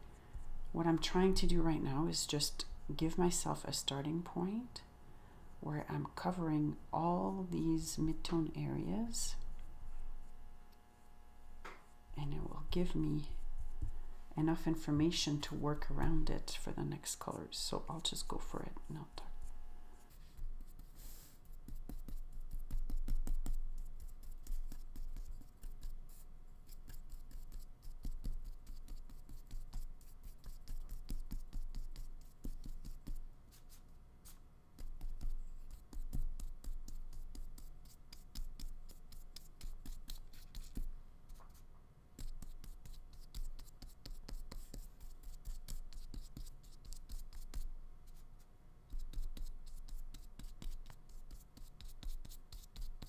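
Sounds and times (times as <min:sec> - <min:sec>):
paintbrush scraping on paper: 0:11.9 - 0:14.8, 0:17.7 - 0:53.0.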